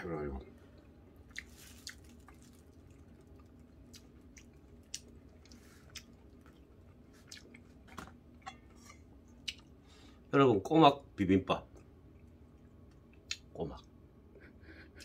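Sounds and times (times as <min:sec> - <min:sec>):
quiet chewing: 0:00.5 - 0:09.8.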